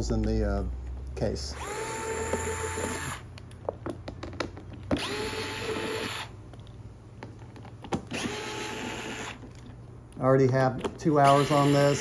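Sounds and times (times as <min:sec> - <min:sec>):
electric screwdriver whining: 0:01.5 - 0:03.3, 0:04.9 - 0:06.3, 0:08.1 - 0:09.4, 0:11.2 - 0:12.0.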